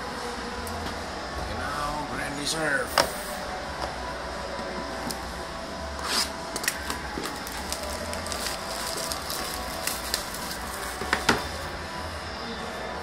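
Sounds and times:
plastic shrink-wrap crinkling: 0:06.6 - 0:11.7.

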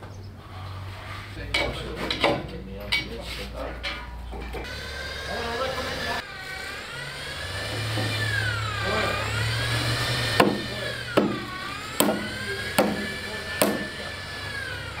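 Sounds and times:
hammer striking steel track: 0:10.3 - 0:14.0.

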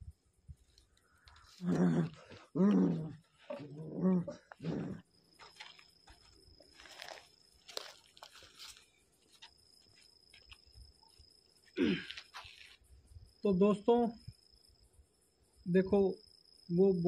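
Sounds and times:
crickets chirring: 0:00.0 - 0:17.0
person grunting: 0:01.6 - 0:05.0, 0:11.8 - 0:12.1
soft footsteps on concrete: 0:05.3 - 0:13.0.

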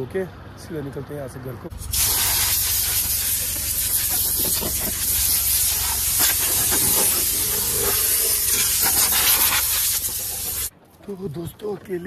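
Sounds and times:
compressed air hissing: 0:01.7 - 0:10.7.

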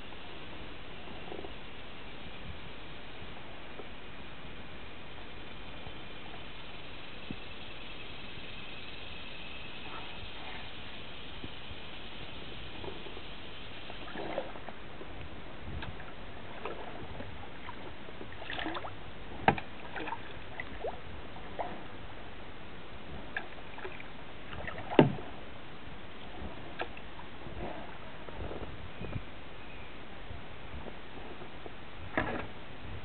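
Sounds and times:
paddle splashes and drips: 0:09.9 - 0:22.0, 0:23.2 - 0:25.4, 0:26.2 - 0:28.0.

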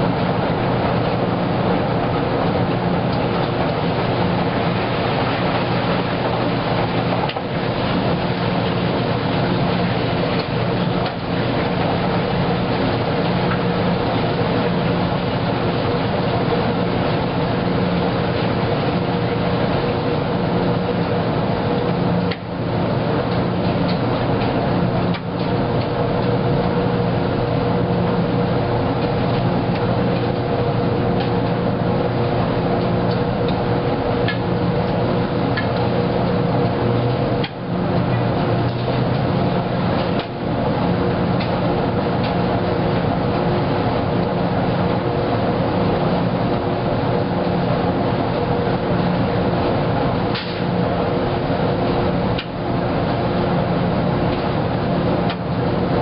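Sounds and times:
washing machine drum tumbling: 0:00.0 - 0:27.0
motor hum: 0:00.0 - 0:56.0.

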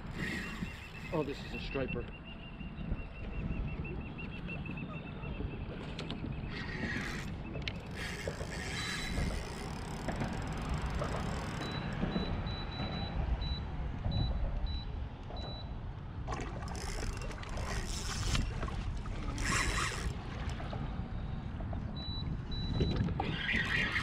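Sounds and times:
rushes of water: 0:00.0 - 0:01.8, 0:05.8 - 0:12.0, 0:16.1 - 0:24.0
wind rumbling on microphone: 0:00.0 - 0:24.0
faint high beeping: 0:00.4 - 0:05.4
water sloshing against kayak: 0:03.2 - 0:12.9, 0:16.2 - 0:23.8.

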